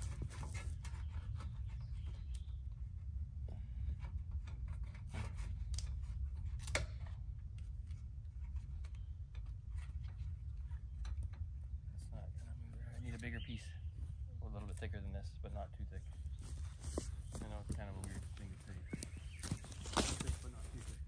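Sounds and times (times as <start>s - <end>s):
twigs crackling underfoot: 16.1s - 21.0s.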